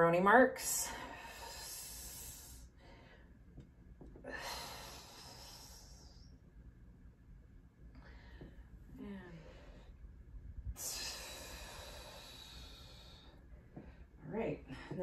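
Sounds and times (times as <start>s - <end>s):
woman breathing out: 4.2s - 6.3s, 10.7s - 14.0s.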